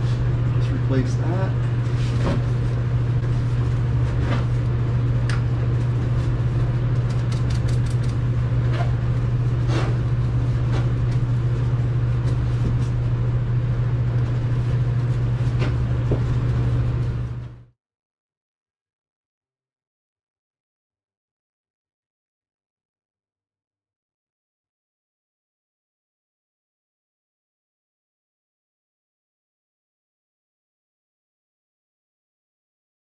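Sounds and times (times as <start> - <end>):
low mechanical hum: 0.0 - 17.8.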